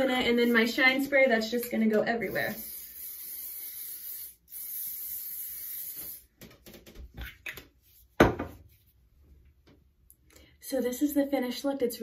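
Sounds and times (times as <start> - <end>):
aerosol spray hissing: 2.2 - 6.3.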